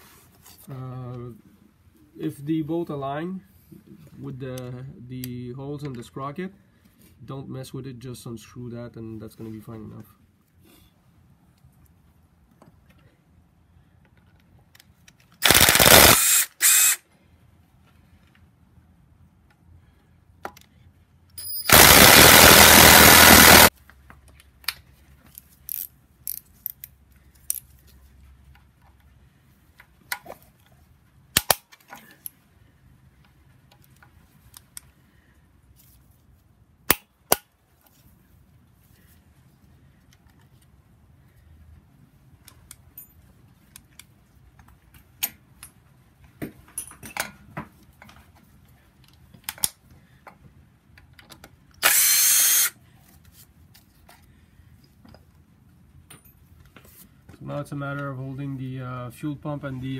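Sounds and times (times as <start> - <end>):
cordless power tool running: 15.4 - 17.0, 21.7 - 23.7, 51.8 - 52.7
metallic clicks of bolts and tools: 24.6 - 27.8, 49.0 - 49.8.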